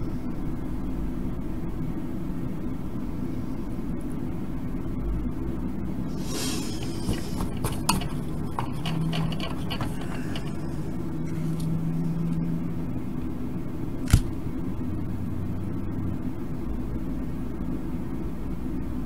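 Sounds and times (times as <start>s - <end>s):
low background hum: 0.0s - 19.0s
soldering tools clicking and tapping: 7.1s - 10.8s.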